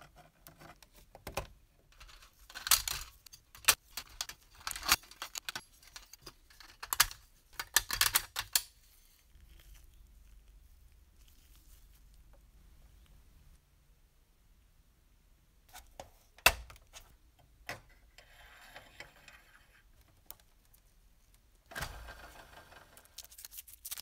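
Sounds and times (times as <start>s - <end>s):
small metal parts clicking: 2.0s - 8.7s.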